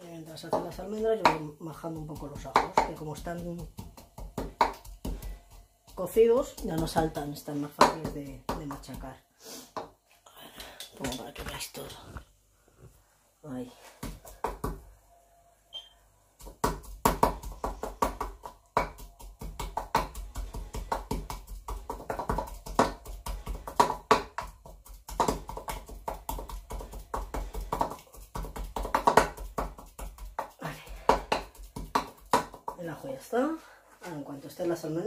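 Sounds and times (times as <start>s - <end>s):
wooden pestle pounding in mortar: 0.0s - 9.2s, 16.4s - 33.0s.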